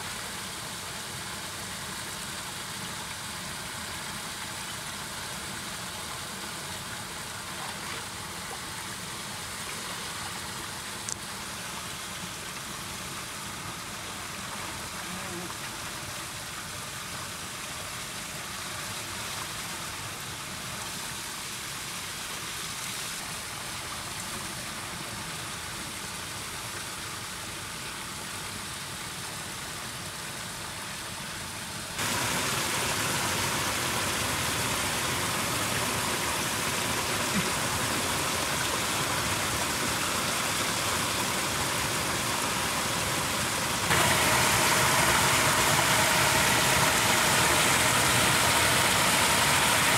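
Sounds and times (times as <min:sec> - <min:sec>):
water pouring into a ditch: 0:31.9 - 0:49.9.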